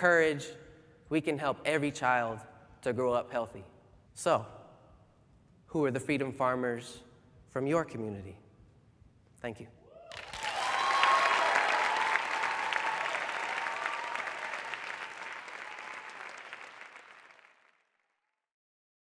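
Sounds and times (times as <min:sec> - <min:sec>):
audience applauding: 0:10.1 - 0:17.9.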